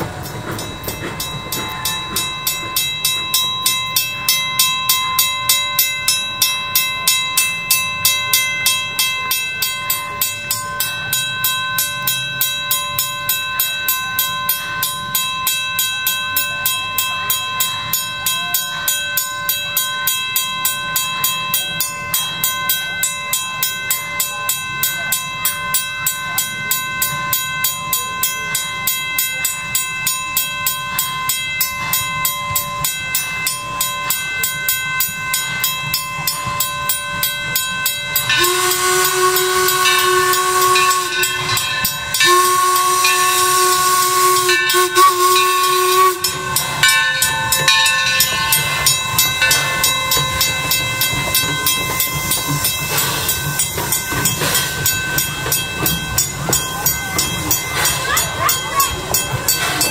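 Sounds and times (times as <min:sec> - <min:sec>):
steam locomotive chuffing: 0:00.0 - 0:59.9
steam whistle blasts: 0:38.3 - 0:46.9.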